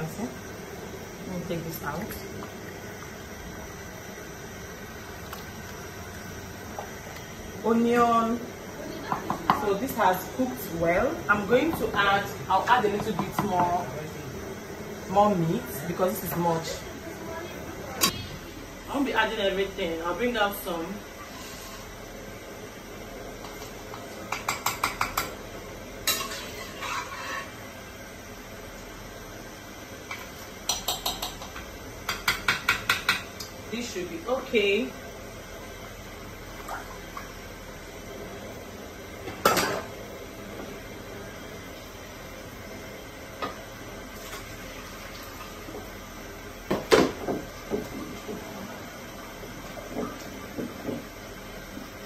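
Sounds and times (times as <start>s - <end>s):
scraping on pot: 26.1s - 27.6s
metal utensil tapping pot: 30.7s - 33.3s.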